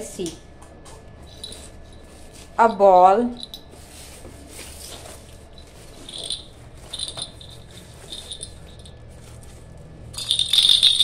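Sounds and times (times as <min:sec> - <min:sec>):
baby rattle jingling: 0:06.1 - 0:09.0, 0:10.2 - 0:11.0.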